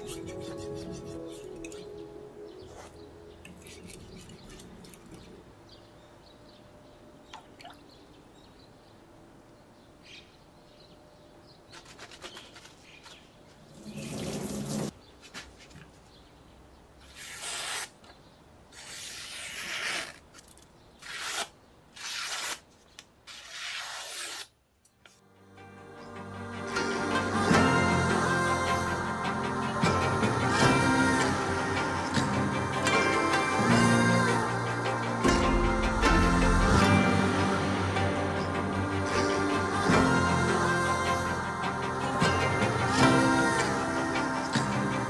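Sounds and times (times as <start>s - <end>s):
knife scraping on whetstone: 0.0s - 1.9s
blade swishing through paper: 11.7s - 13.2s, 17.0s - 18.0s, 21.0s - 22.6s, 23.3s - 24.5s.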